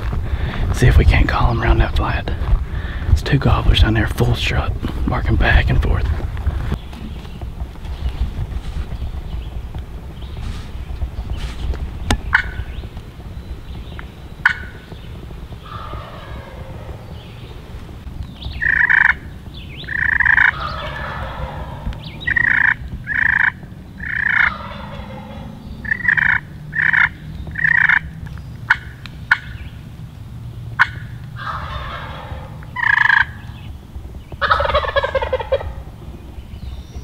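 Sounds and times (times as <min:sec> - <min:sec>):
turkeys gobbling: 0:12.1 - 0:12.8, 0:13.9 - 0:17.9, 0:18.5 - 0:28.1, 0:28.7 - 0:29.8, 0:30.8 - 0:33.7, 0:34.4 - 0:36.3.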